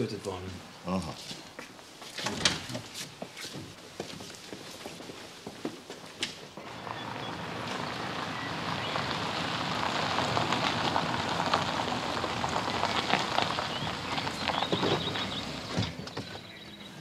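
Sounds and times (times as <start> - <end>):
car tyres crunching on gravel: 6.6 - 16.7.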